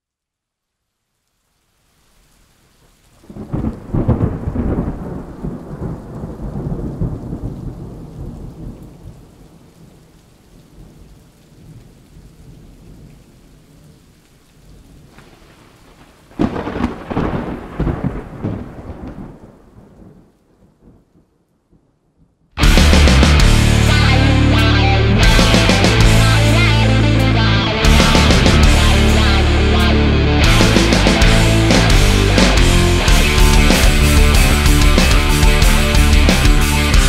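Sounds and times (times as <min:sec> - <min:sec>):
steady rain: 0:00.0 - 0:37.0
thunder rumbling: 0:03.2 - 0:13.1, 0:14.9 - 0:21.1, 0:22.6 - 0:37.0.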